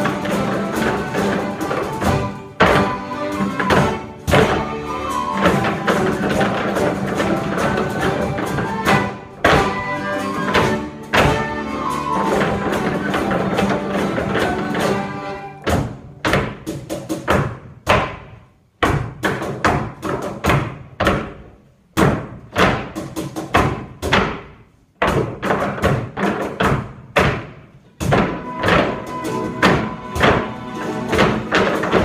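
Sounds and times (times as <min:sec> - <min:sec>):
guitars and fiddles playing: 0:00.0 - 0:16.0, 0:28.2 - 0:32.0
rhythmic percussive hits: 0:00.0 - 0:32.0.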